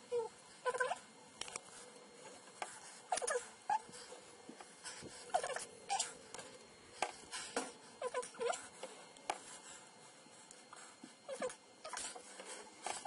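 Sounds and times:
stepper motor squeaky chirps: 3.1 - 3.9.

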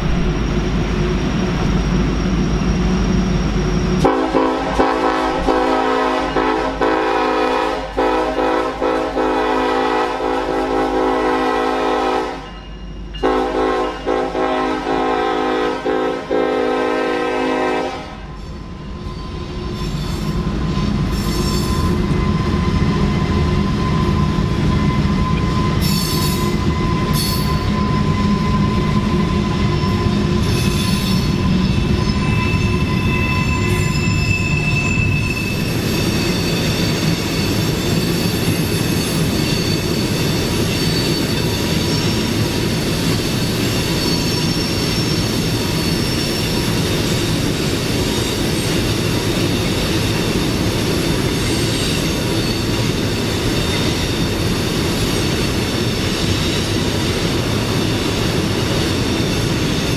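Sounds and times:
high wheel squeal: 0.0 - 4.2, 12.3 - 14.1, 18.3 - 59.9
freight train rumbling: 0.0 - 59.9.

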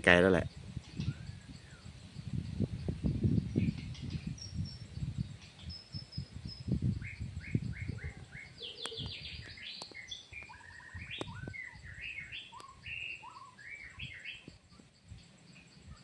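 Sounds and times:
birds whistling: 0.5 - 14.8
sharp clicks: 11.1 - 11.4.

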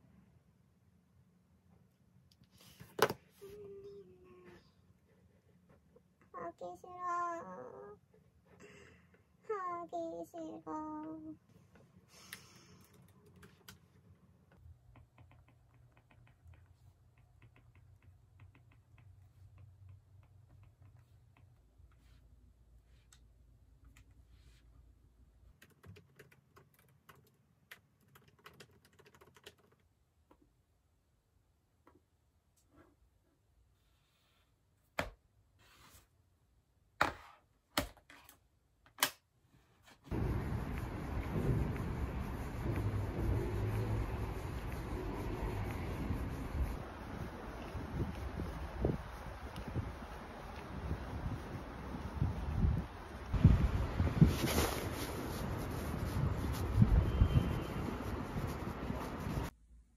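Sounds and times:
typing on laptop keyboard: 12.6 - 13.8, 14.9 - 21.0, 25.5 - 29.9
steady rushing noise: 40.1 - 59.5.

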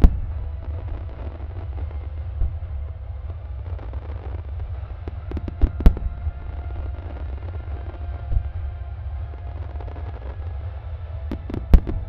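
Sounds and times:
sharp firework bangs: 0.0 - 8.7, 11.3 - 12.0
dull firework boom: 0.0 - 8.8, 11.3 - 12.0
echoing firework detonations: 0.0 - 12.0.

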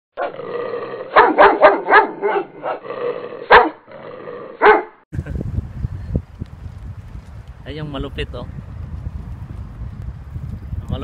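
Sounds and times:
dog barking: 1.1 - 2.8, 3.4 - 3.8, 4.6 - 5.0.

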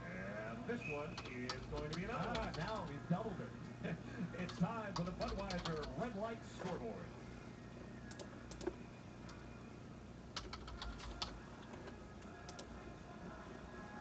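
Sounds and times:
low room hum: 0.0 - 14.0
typing on computer keyboard: 1.2 - 2.9, 4.5 - 6.0, 10.4 - 11.4, 12.5 - 12.7.

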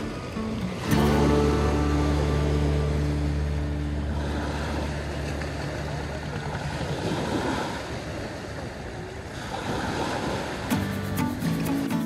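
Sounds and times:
background music: 0.0 - 4.8, 10.7 - 12.0
waves washing onto beach: 0.0 - 12.0.

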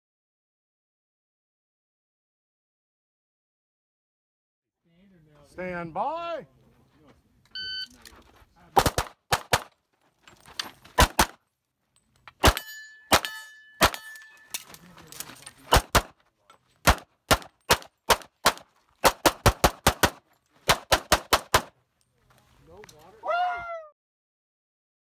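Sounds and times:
handgun shots: 8.8 - 9.7, 11.0 - 11.4, 12.4 - 14.2, 15.7 - 16.2, 16.8 - 21.7
steel target ringing: 12.5 - 14.6.

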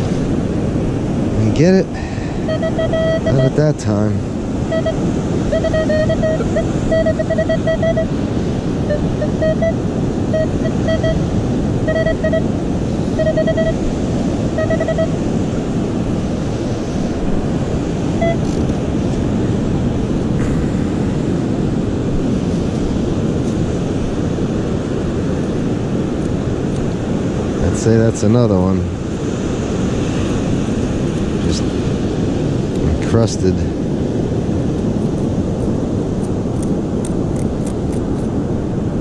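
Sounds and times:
surf: 0.0 - 36.5
wind: 0.0 - 39.0
metal detector beeping: 2.3 - 4.0, 4.6 - 8.2, 8.8 - 15.2, 18.1 - 18.6.

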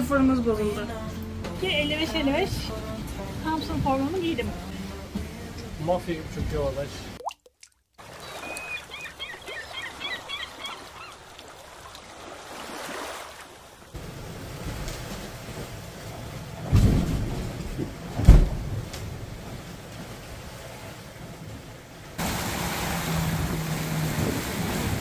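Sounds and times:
rush of water and wind: 8.0 - 25.0
waves slamming against hull: 14.0 - 25.0.

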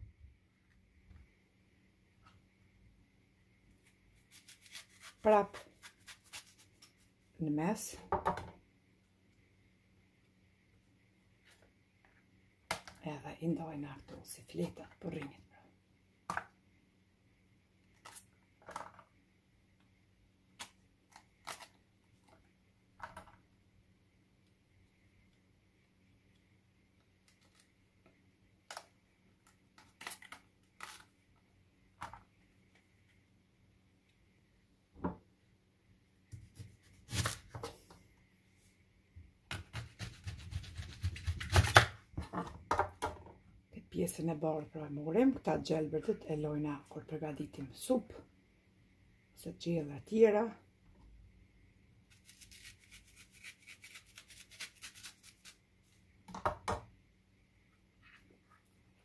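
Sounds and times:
knife cutting leek: 4.2 - 6.9, 36.3 - 37.7, 39.5 - 42.0.

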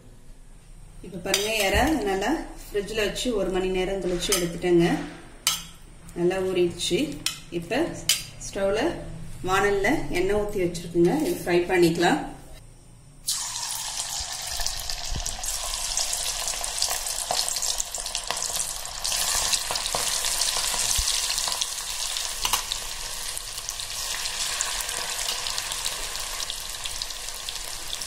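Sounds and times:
prawns deep-frying in hot oil: 13.3 - 28.0.

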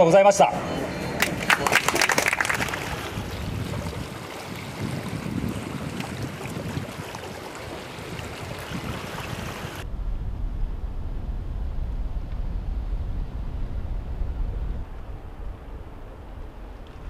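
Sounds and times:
wind rumbling on microphone: 1.9 - 17.0.

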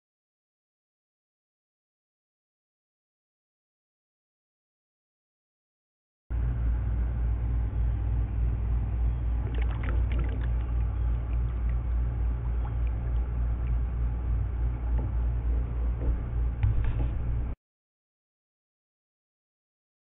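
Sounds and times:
steady low rumble: 6.3 - 17.6
paddle splashing water: 9.4 - 17.5.

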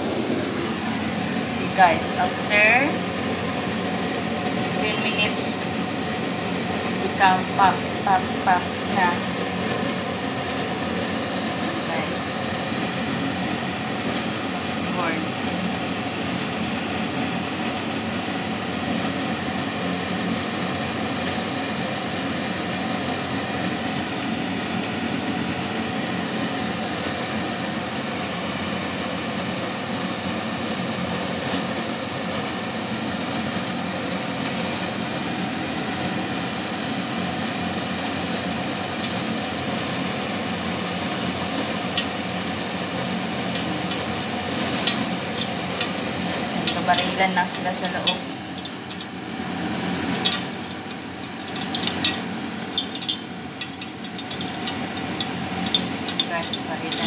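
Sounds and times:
steady hum and hiss: 0.0 - 57.0
popcorn kernels popping: 38.4 - 57.0.

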